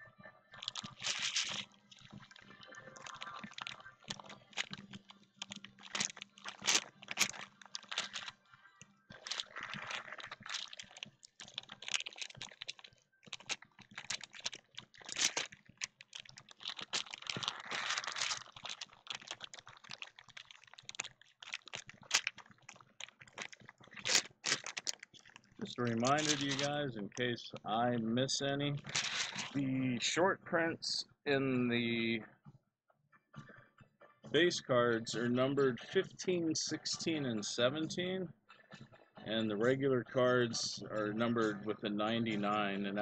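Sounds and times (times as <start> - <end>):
foil wrappers crinkling: 0.6 - 8.5, 9.1 - 27.2, 28.8 - 29.6.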